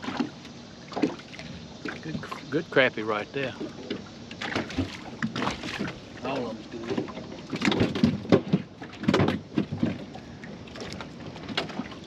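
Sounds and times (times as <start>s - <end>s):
gear knocking on boat: 3.4s - 12.0s.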